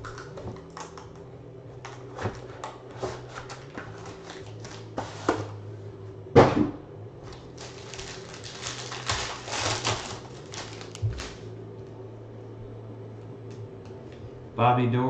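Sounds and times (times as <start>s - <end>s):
foil wrapper tearing and crinkling: 3.2s - 5.0s, 7.3s - 11.4s.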